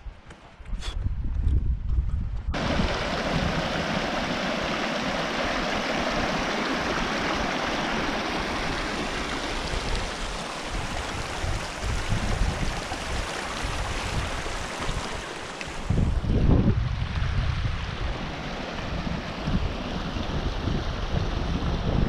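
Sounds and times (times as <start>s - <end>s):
creek running over rocks: 2.6s - 22.0s.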